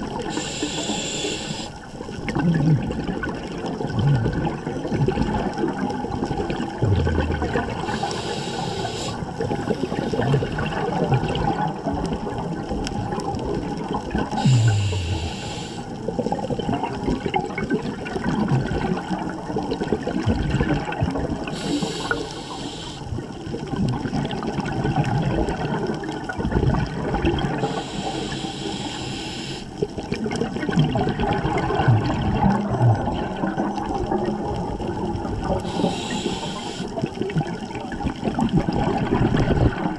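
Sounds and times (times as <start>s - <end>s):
bubbling of exhaled air: 0.0s - 39.9s
regulator air hiss: 0.3s - 1.8s, 7.8s - 10.2s, 14.4s - 16.0s, 21.5s - 23.1s, 27.6s - 29.7s, 35.6s - 36.9s.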